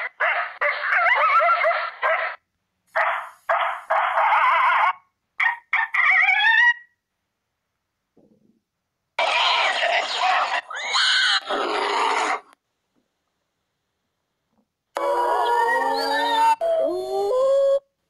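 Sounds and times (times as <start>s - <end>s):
recorded coyote barks and yips: 0.0s - 7.0s.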